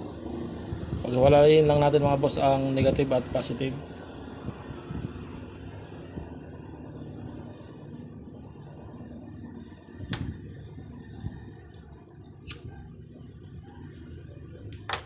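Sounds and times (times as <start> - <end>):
lighter click: 12.4 - 12.6.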